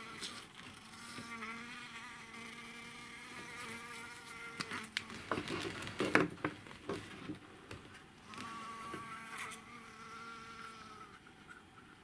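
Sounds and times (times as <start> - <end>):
honeybee buzzing: 0.0 - 5.0, 8.2 - 11.2.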